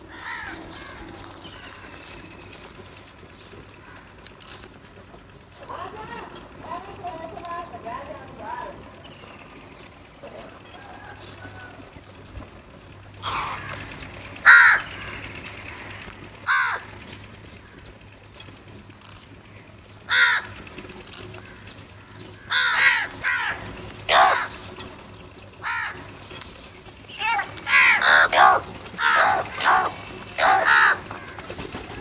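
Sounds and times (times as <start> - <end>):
crows cawing: 0.0 - 2.8, 3.6 - 4.7, 13.1 - 18.1, 19.4 - 32.0.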